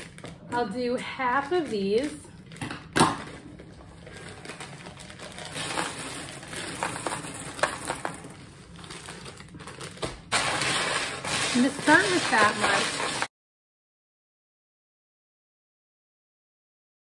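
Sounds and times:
scissors snipping plastic bag: 4.1 - 8.2, 8.8 - 13.3
beans pouring into plastic tub: 5.2 - 8.8, 10.3 - 13.3.

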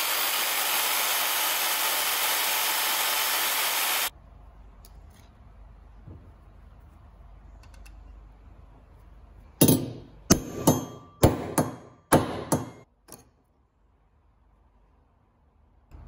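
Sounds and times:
hammer striking metal punch: 9.6 - 13.3.

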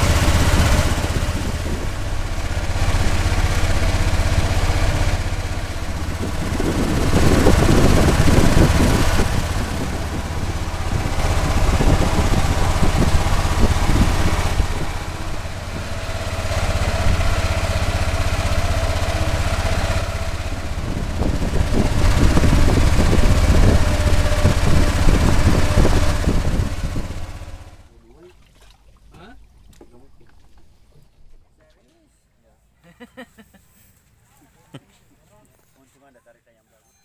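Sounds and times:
boat engine pulsing: 0.0 - 31.4.

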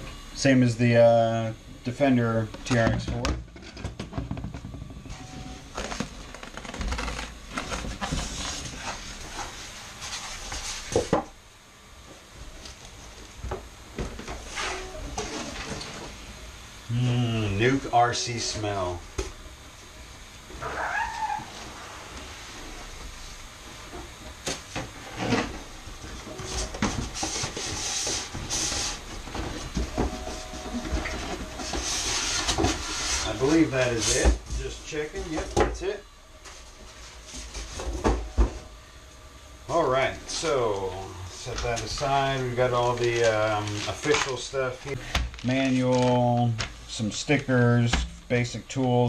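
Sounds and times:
packaging rustling and crinkling: 41.4 - 46.8.

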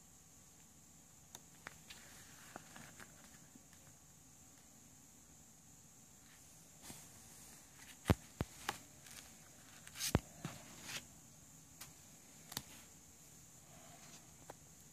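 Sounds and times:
rustle of card: 1.6 - 3.9, 6.2 - 11.0.

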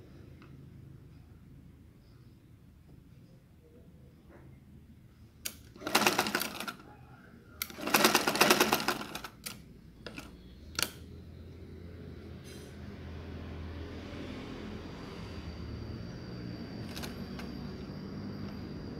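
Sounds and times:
sewing machine stitching: 5.5 - 6.8, 7.6 - 10.3.

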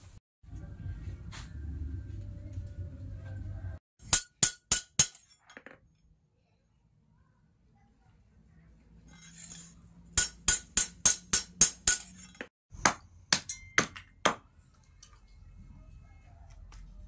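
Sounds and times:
hammer striking metal on anvil: 4.0 - 5.4, 10.1 - 14.4
hatchet chopping wood: 12.7 - 14.5.

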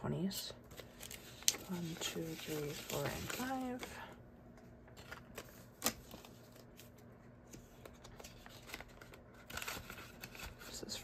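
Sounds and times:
paper banknotes rustling: 0.7 - 4.0.

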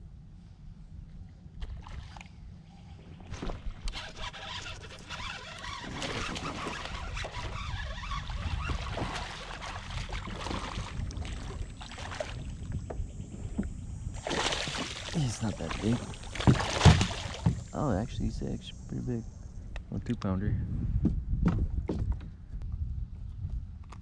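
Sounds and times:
fish splashing at surface: 14.2 - 17.7
low rumble: 15.1 - 23.8.

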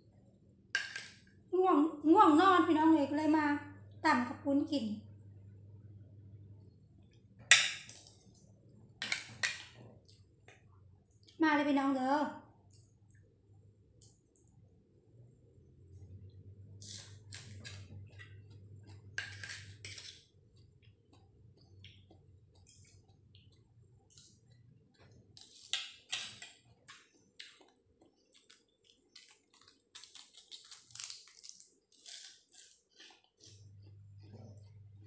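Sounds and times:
person chewing and crunching food: 15.6 - 35.0.

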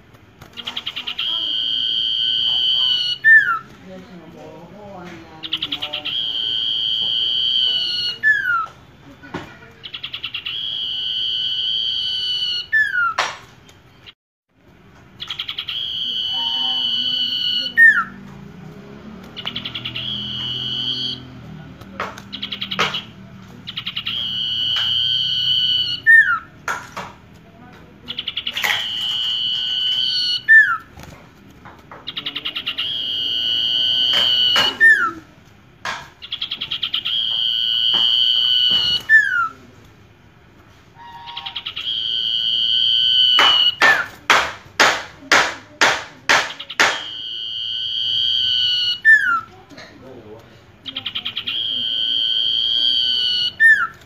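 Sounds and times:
songbird whistling: 0.6 - 3.7, 5.4 - 8.8, 9.8 - 13.2, 15.2 - 18.2, 19.2 - 21.4, 22.3 - 26.5, 28.1 - 30.9, 32.1 - 35.2, 36.2 - 39.6, 41.0 - 44.1, 46.6 - 49.5, 50.9 - 54.0
sharp ticks: 17.0 - 25.9.

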